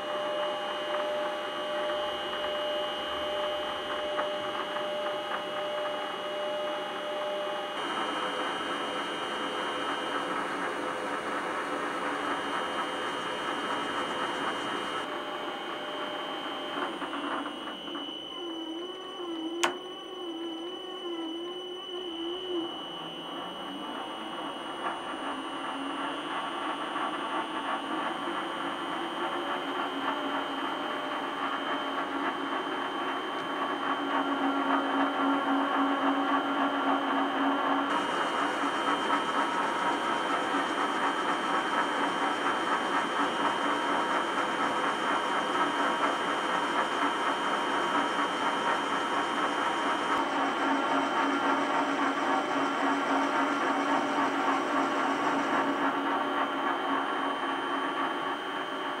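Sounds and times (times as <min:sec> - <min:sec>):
metal lathe whining: 0:00.1 - 0:59.0.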